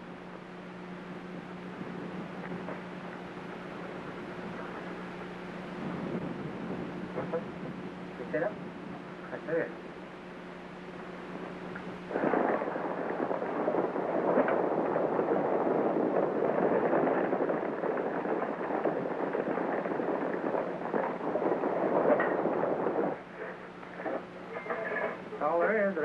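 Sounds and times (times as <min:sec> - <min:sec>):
horses galloping on turf: 0:11.8 - 0:26.0.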